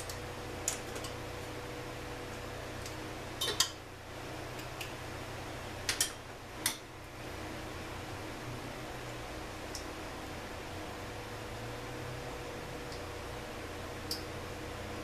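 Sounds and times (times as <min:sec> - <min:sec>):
steady hum: 0:00.0 - 0:15.0.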